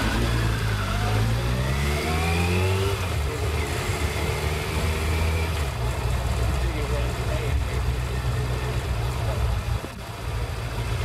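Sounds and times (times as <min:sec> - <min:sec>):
motorcycle engine rising in pitch: 0:00.0 - 0:05.9.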